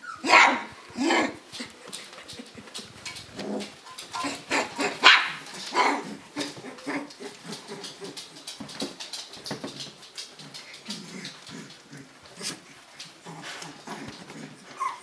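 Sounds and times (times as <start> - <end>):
puppies yipping: 0.0 - 8.7, 13.9 - 15.0.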